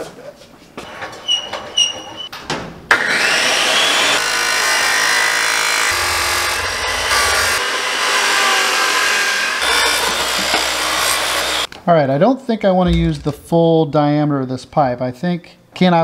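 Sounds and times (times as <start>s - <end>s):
chop saw whining: 3.0s - 11.7s.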